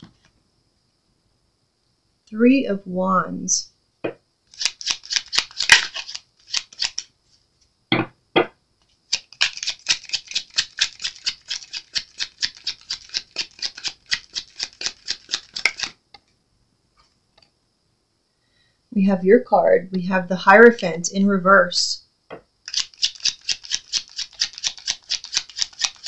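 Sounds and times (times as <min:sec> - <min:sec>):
cards being shuffled: 0:04.5 - 0:07.4, 0:09.0 - 0:16.0, 0:22.7 - 0:26.0.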